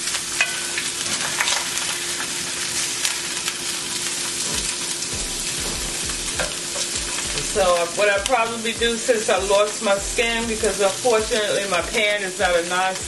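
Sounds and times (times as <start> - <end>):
fish and onions sizzling in a pan: 0.0 - 13.0
spatula scraping and tapping pan: 5.6 - 12.6.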